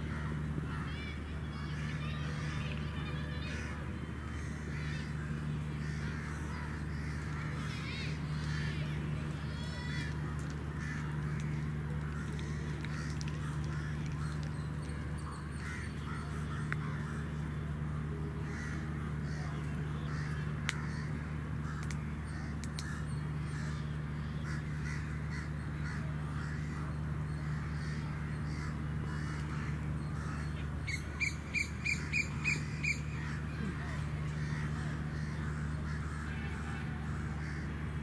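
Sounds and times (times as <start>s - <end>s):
steady low hum: 0.0s - 38.0s
crows cawing: 9.7s - 14.5s, 15.6s - 17.3s, 18.4s - 18.8s, 24.4s - 37.7s.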